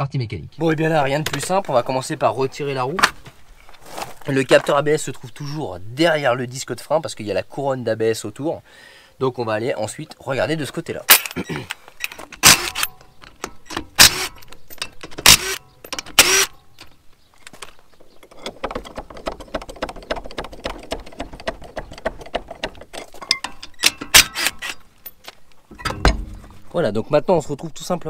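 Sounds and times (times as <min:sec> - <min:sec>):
impact wrench hammering wheel nuts: 0:12.3 - 0:16.5, 0:18.4 - 0:24.8
fast light ticking and rattling: 0:18.2 - 0:23.6.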